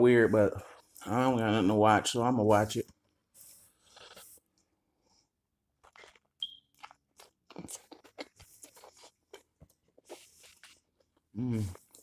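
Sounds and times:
person chewing food: 0:03.0 - 0:12.0.

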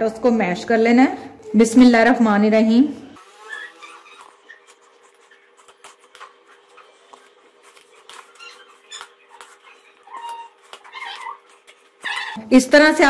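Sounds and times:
short pitched squeak: 0:03.3 - 0:04.6.

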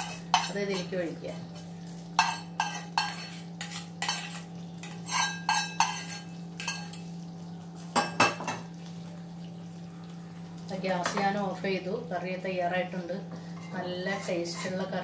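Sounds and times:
metal spoon clinking on pans: 0:00.0 - 0:01.0, 0:02.2 - 0:07.1.

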